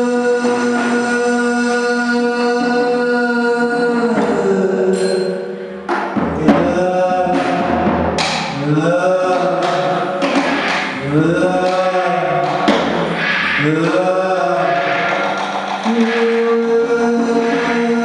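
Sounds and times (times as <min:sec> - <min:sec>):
sharp percussive hits: 0:04.1 - 0:18.0
noisy electronic drone: 0:10.2 - 0:18.0
man singing held notes: 0:11.0 - 0:18.0.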